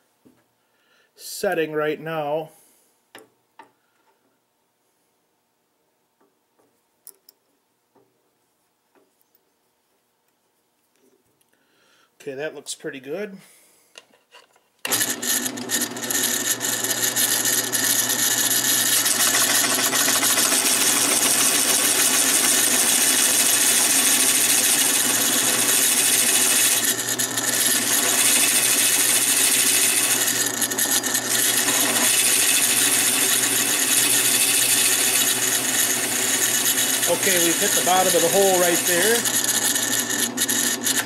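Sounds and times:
drill press running: 0:14.9 - 0:41.0
hole saw cutting wood: 0:14.9 - 0:41.0.

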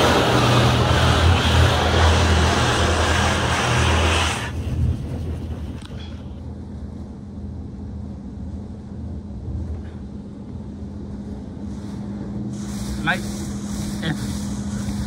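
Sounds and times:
water spray hissing on a vehicle: 0:00.0 - 0:04.6, 0:11.7 - 0:15.0
steady low hum: 0:00.0 - 0:15.0.

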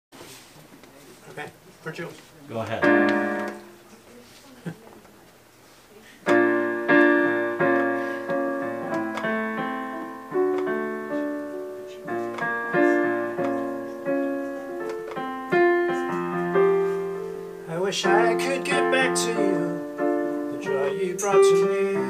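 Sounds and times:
digital piano ballad chords: 0:02.8 - 0:03.8, 0:06.3 - 0:22.0.

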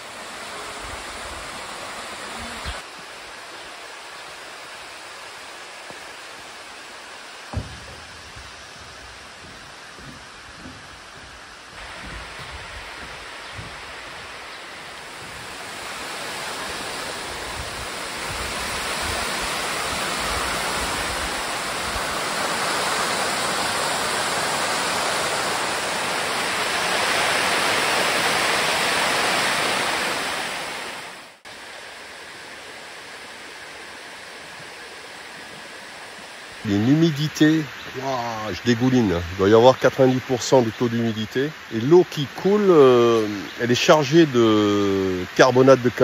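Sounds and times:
waterfall rushing: 0:00.0 - 0:46.0.

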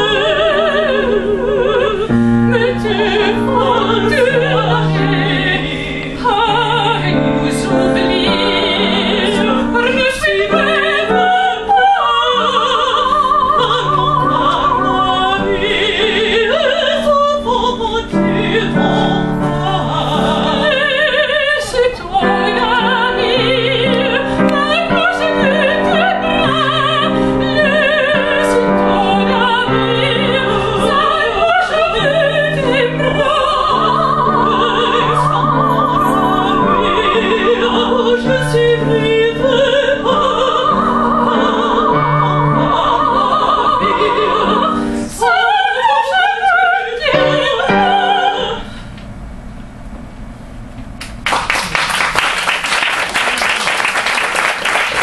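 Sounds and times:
women singing operatic duet: 0:00.0 - 0:49.0
piano accompaniment: 0:00.0 - 0:50.0
audience applause: 0:51.1 - 0:55.0.

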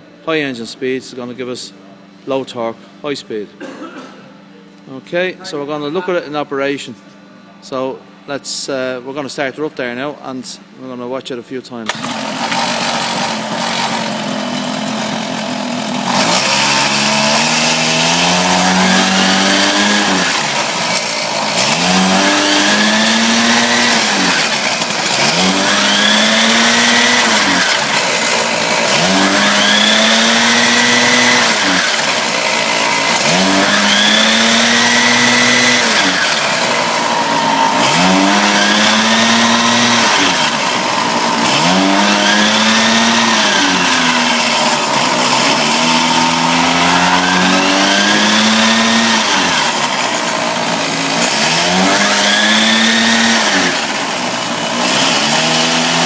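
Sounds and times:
small motorbike engine revving: 0:11.9 - 0:56.0.

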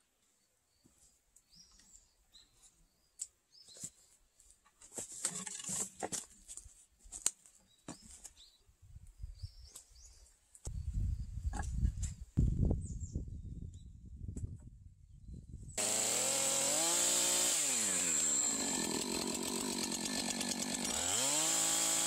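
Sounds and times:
small birds chirping: 0:00.3 - 0:04.4, 0:07.6 - 0:14.0.

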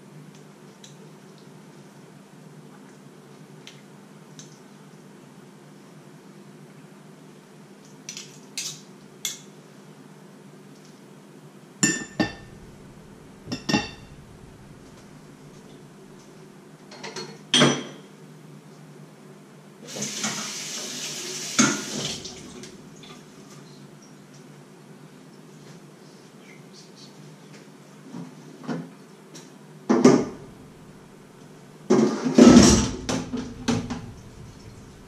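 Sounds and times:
metal utensils clinking on pot: 0:11.8 - 0:12.6, 0:13.5 - 0:14.2.

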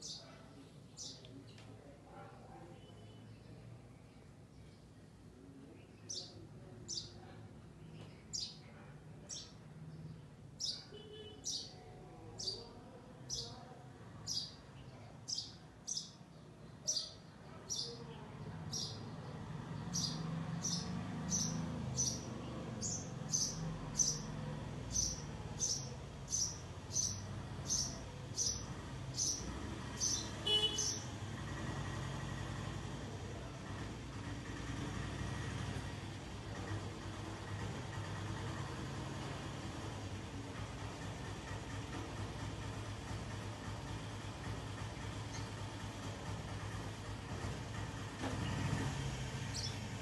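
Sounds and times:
sparrow chirping: 0:00.0 - 0:00.4, 0:01.0 - 0:01.3, 0:05.8 - 0:07.2, 0:07.9 - 0:12.7, 0:13.3 - 0:13.6, 0:14.2 - 0:31.1, 0:49.5 - 0:49.9.

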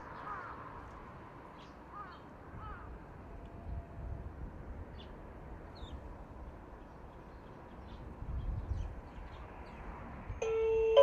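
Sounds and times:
electronic train-approach chime: 0:10.4 - 0:11.0.

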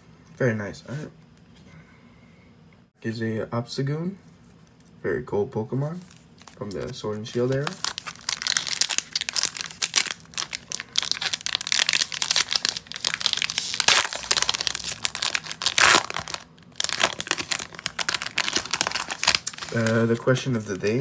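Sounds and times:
foil wrapper tearing and crinkling: 0:07.3 - 0:20.3.

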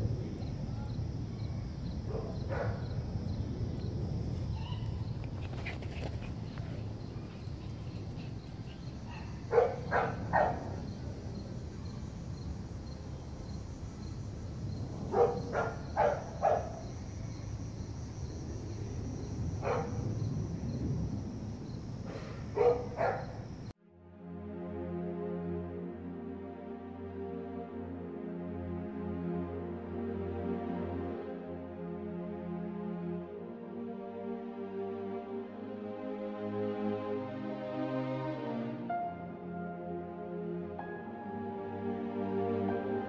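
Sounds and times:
dog barking: 0:02.1 - 0:03.0, 0:08.8 - 0:10.9, 0:15.1 - 0:16.9, 0:19.6 - 0:20.1, 0:22.2 - 0:23.5.

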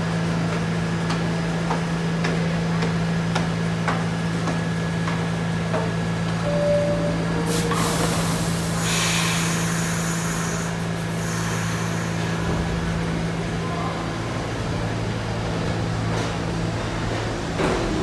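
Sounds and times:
subway car equipment humming: 0:00.0 - 0:18.0
air brakes hissing: 0:07.4 - 0:12.7.

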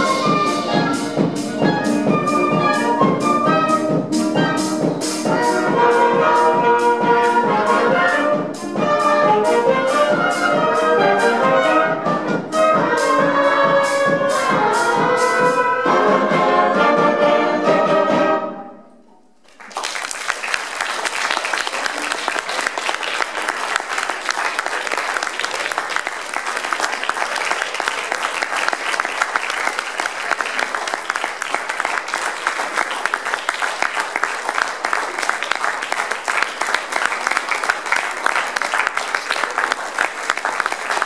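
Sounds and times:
audience applause: 0:19.5 - 0:41.0.

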